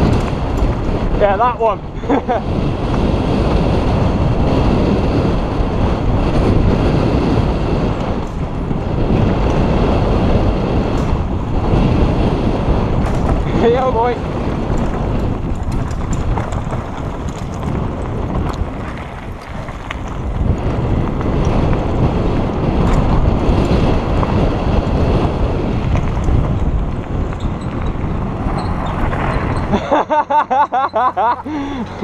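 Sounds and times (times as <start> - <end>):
bike rattling: 0.0 - 32.0
wind buffeting microphone: 0.0 - 32.0
tyres crunching over gravel: 8.8 - 29.8.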